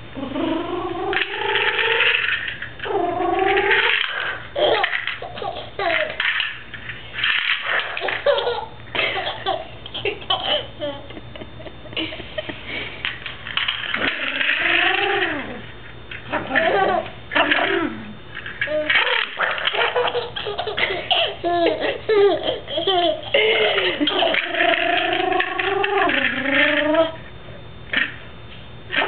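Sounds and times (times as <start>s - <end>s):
baby laughing: 3.7s - 6.4s, 7.6s - 11.2s, 18.7s - 25.2s.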